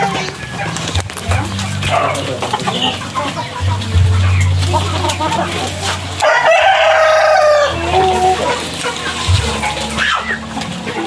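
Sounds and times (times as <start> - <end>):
rooster crowing: 6.2 - 8.5.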